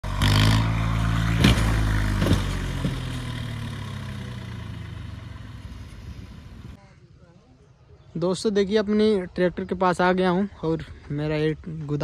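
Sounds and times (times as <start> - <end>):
diesel tractor engine running: 0.0 - 6.8.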